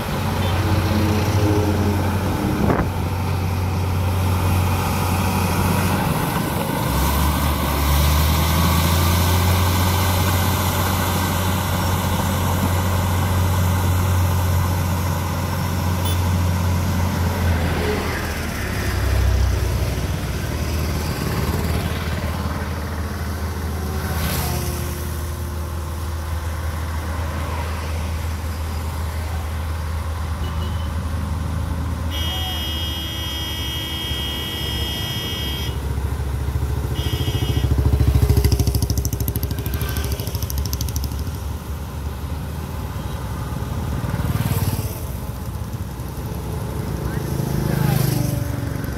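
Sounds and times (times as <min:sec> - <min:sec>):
bulldozer diesel engine running: 0:00.0 - 0:27.4, 0:28.0 - 0:48.9
road traffic passing: 0:00.0 - 0:48.9
vehicle horn: 0:16.0 - 0:16.3, 0:32.1 - 0:35.9, 0:36.8 - 0:38.0.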